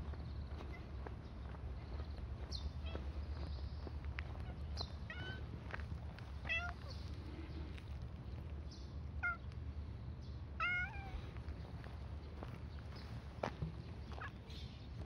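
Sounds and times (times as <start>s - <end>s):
cat meowing: 10.6s - 11.2s.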